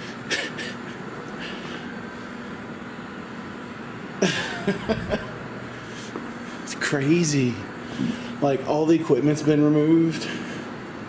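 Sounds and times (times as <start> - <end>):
low ventilation hum: 0.0 - 11.0
man coughing or mumbling: 0.3 - 1.0, 4.2 - 5.4.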